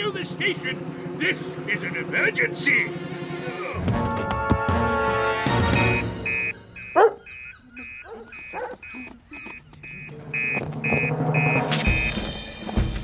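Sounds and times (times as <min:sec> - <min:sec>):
alarm printer beeping: 0:05.7 - 0:12.3
dog yelping: 0:06.8 - 0:09.1
dog barking: 0:06.9 - 0:07.4, 0:08.0 - 0:09.0.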